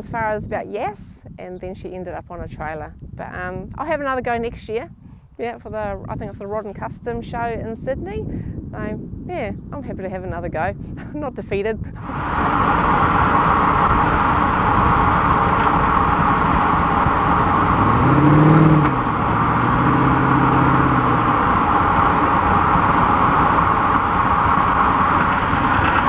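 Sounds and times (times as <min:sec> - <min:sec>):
road and wind noise: 0:00.0 - 0:26.0
car engine: 0:12.0 - 0:26.0.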